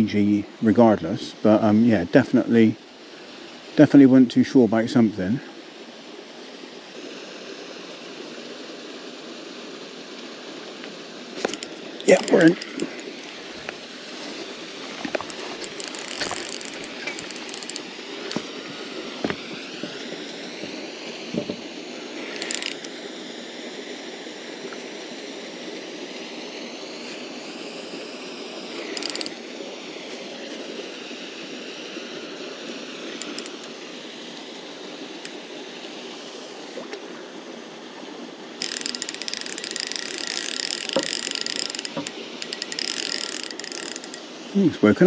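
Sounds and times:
fishing reel drag ticking: 0:11.4 - 0:13.8, 0:15.0 - 0:20.0, 0:22.2 - 0:23.0, 0:28.8 - 0:29.4, 0:33.2 - 0:33.7, 0:38.6 - 0:44.3.

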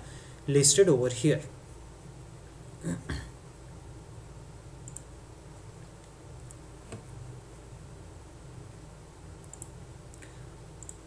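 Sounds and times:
low steady hum: 0:00.0 - 0:11.0
faint clicks: 0:04.8 - 0:05.1, 0:09.4 - 0:11.0.

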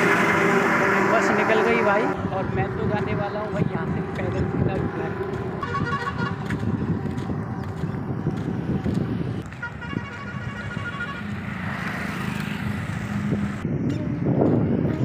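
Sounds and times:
passing vehicle engine hum: 0:00.0 - 0:15.0
road traffic: 0:00.0 - 0:15.0
wind on microphone: 0:01.3 - 0:15.0
pulsing vehicle horn: 0:05.6 - 0:06.6, 0:09.5 - 0:11.7.

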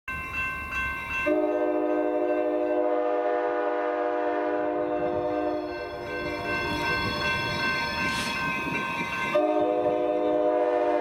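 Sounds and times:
locomotive air horn chord: 0:01.3 - 0:06.9, 0:09.4 - 0:11.0.

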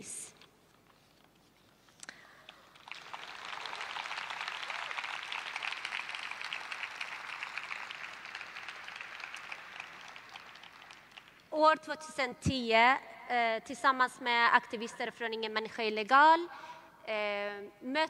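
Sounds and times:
audience applauding: 0:02.6 - 0:11.5.

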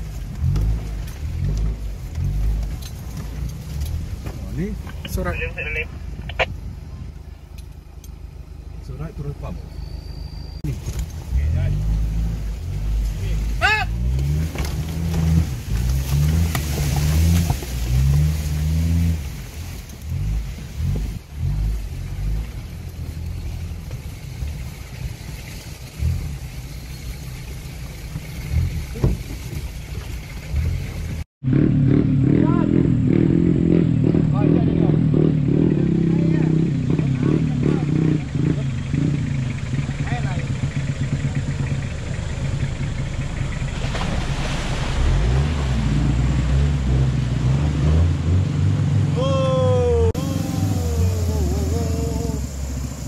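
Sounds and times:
engine running at low revs: 0:00.0 - 0:53.0
pickup engine running under load: 0:32.9 - 0:53.0
water sloshing: 0:43.0 - 0:46.5.

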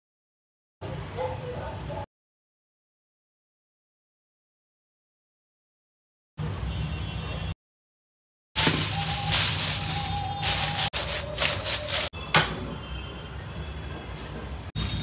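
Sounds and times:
aluminium foil crinkling: 0:08.6 - 0:12.1, 0:14.8 - 0:15.0.

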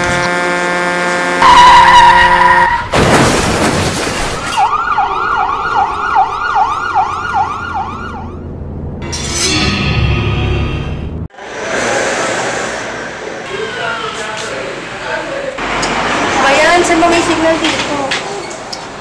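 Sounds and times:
emergency siren wailing: 0:00.0 - 0:02.9, 0:04.6 - 0:08.6
truck horn blaring: 0:00.0 - 0:02.9
crash: 0:02.9 - 0:04.6.

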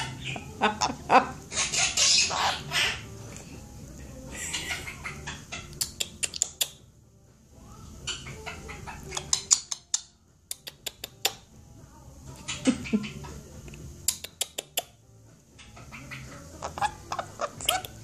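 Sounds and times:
parrot chattering: 0:00.0 - 0:03.1, 0:04.3 - 0:06.8, 0:08.0 - 0:11.5, 0:12.4 - 0:13.4, 0:14.0 - 0:15.0, 0:15.6 - 0:18.0
parrot sharp clicks: 0:05.8 - 0:06.8, 0:09.1 - 0:11.4, 0:14.1 - 0:14.9.

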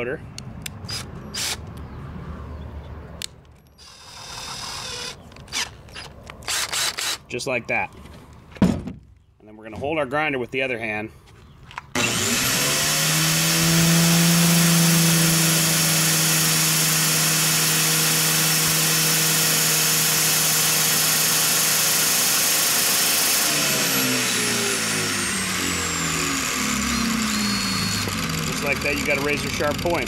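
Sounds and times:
angle grinder whining: 0:03.8 - 0:07.2, 0:12.0 - 0:30.0.

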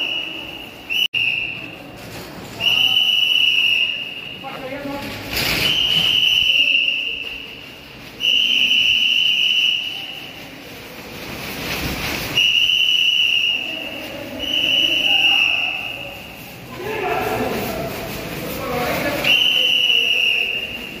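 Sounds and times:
whistle blasts: 0:00.0 - 0:01.8, 0:02.6 - 0:04.5, 0:05.5 - 0:07.6, 0:08.2 - 0:10.4, 0:12.3 - 0:16.4, 0:19.2 - 0:21.0.

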